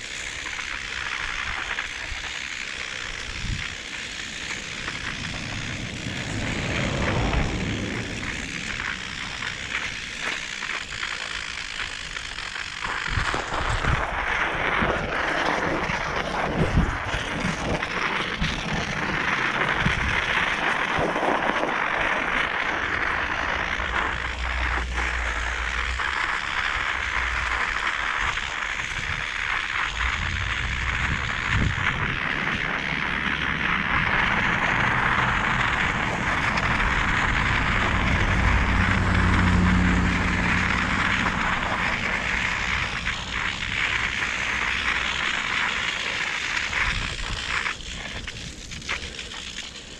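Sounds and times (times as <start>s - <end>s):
wind buffeting microphone: 2.9s - 12.0s, 15.8s - 47.6s
tyres rushing on road: 4.0s - 10.6s, 33.0s - 45.5s.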